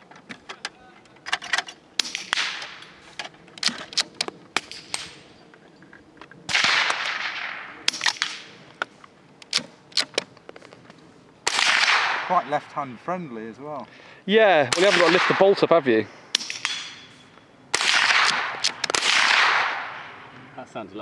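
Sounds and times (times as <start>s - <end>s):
rifle firing muffled cracks: 1.5s - 5.2s, 6.3s - 12.7s, 14.7s - 17.0s, 17.7s - 20.4s
loud gunshots with rolling echo: 6.5s - 8.5s, 11.4s - 12.8s, 14.6s - 17.0s, 17.7s - 20.3s.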